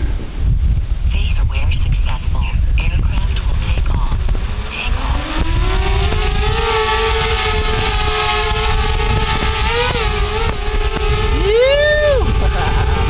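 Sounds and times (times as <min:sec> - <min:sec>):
drone propellers whining: 0:03.3 - 0:13.0.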